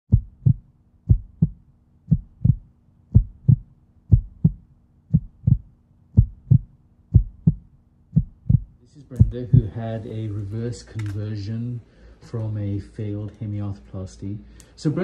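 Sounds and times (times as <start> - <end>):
heartbeat: 0.0 - 9.9
faint low hum: 0.1 - 15.0.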